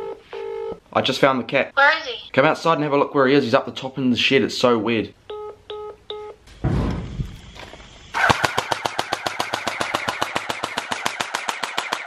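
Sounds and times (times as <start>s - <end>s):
toy blaster rapid fire: 8.1s - 12.0s.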